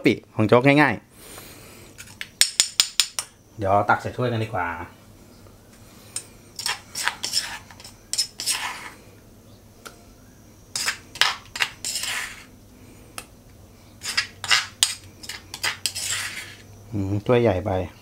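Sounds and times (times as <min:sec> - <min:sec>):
spoon scraping stone mortar: 0:06.1 - 0:09.0, 0:10.7 - 0:12.5, 0:14.0 - 0:16.7.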